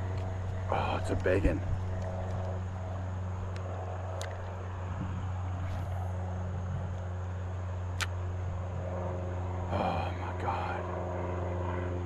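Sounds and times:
low mechanical motor drone: 0.0s - 12.0s
short sharp clicks: 8.0s - 8.2s.

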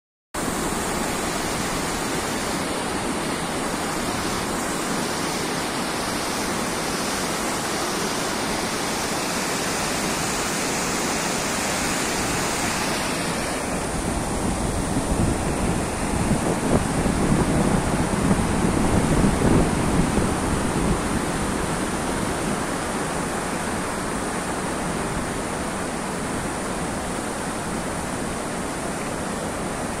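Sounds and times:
floodwater rushing: 0.4s - 30.0s.

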